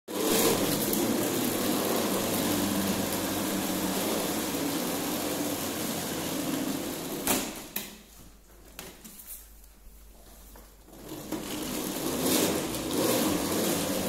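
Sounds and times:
plastic wheels rolling on tiles: 0.1s - 7.7s, 10.5s - 14.0s.

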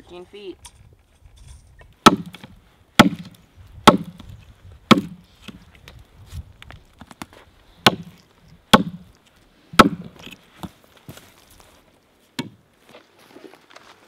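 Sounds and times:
hatchet chopping log: 2.0s - 5.6s, 7.8s - 9.1s, 9.7s - 10.8s, 12.4s - 12.6s.

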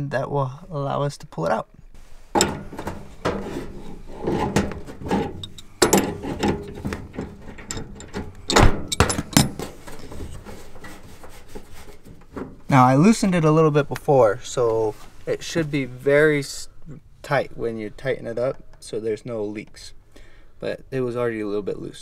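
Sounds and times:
wrench clicking and scraping on metal: 2.4s - 10.1s.

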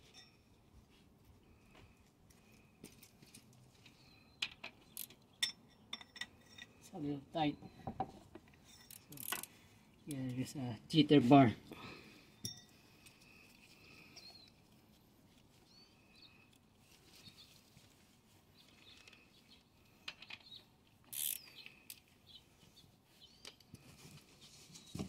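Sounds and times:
faint bird chirps: 13.3s - 14.6s, 15.6s - 17.7s.

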